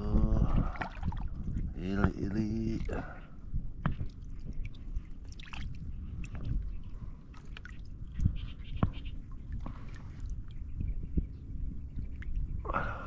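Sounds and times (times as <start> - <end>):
water drips and splashes: 0.4 - 3.2, 3.8 - 10.6.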